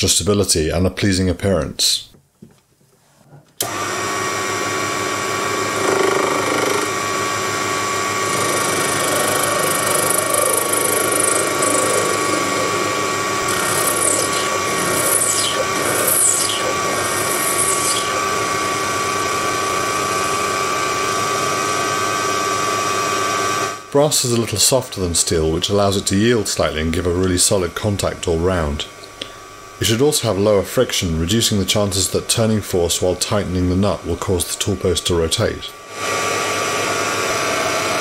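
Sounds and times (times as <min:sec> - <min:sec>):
lathe motor whine: 0:03.6 - 0:23.9, 0:31.1 - 0:38.0
high sliding tones: 0:08.2 - 0:20.3
cutting hiss: 0:08.2 - 0:20.4.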